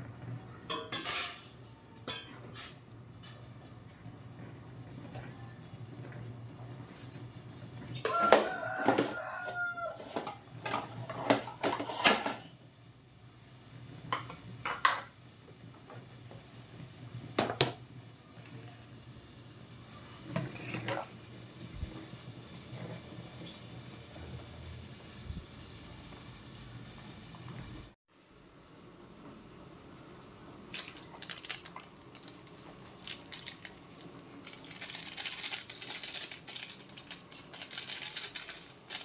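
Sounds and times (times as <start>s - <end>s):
rooster crowing: 8.0s - 10.4s.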